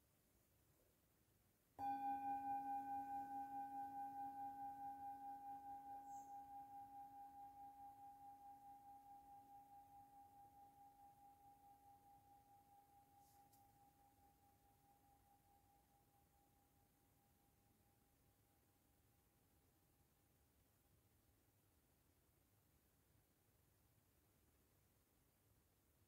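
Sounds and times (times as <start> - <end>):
metal singing bowl ringing: 1.8 - 12.9.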